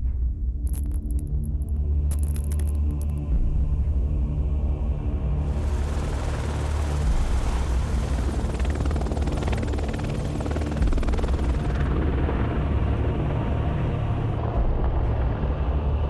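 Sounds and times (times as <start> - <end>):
turbine engine drone: 2.2 - 16.0
helicopter rotor beating: 5.5 - 14.4.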